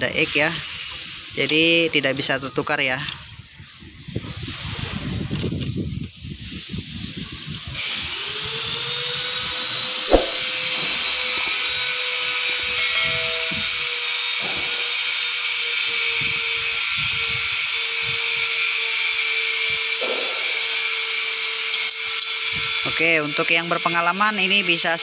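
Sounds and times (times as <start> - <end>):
sharp click: 10.1 - 10.4.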